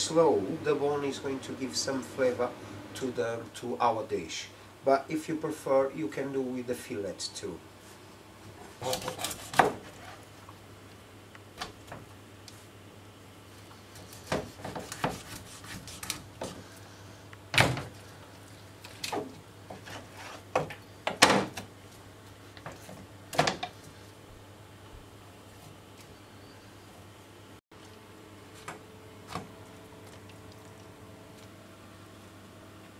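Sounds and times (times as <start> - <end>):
knife chopping on cutting board: 9.0 - 9.9, 14.2 - 16.6.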